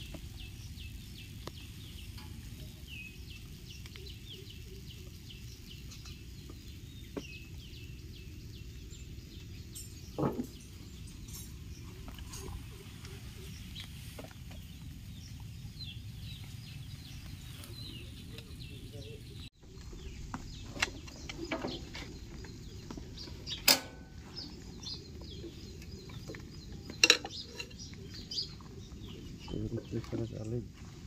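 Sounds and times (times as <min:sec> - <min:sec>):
faint bird chirps: 0:00.0 - 0:31.0
metallic clinks and knocks: 0:09.7 - 0:12.6
steel bar striking metal: 0:23.6 - 0:24.1.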